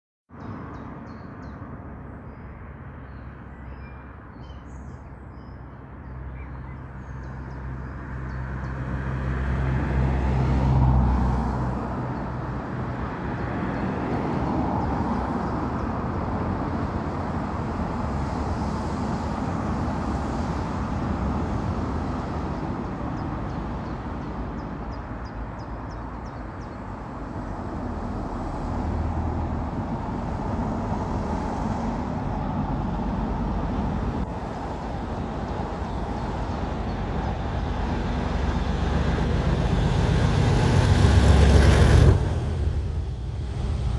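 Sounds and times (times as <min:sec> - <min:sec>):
birds chirping: 0:00.3 - 0:08.9, 0:22.9 - 0:27.0
diesel locomotive engine throbbing: 0:32.3 - 0:43.9.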